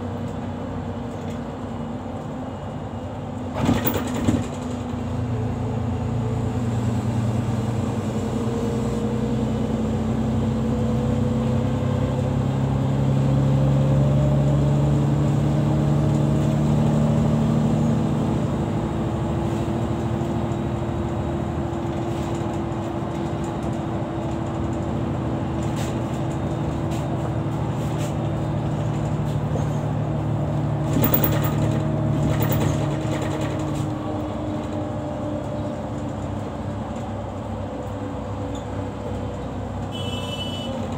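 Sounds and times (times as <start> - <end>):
bus engine hum: 0.0 - 40.9
road noise: 0.0 - 40.9
rattling: 30.9 - 33.7.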